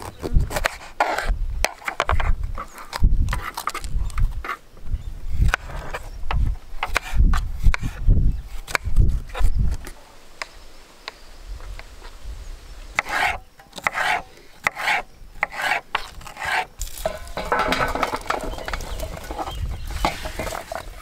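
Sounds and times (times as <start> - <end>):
pepper strips rustling in steel bowl: 16.8 - 21.0.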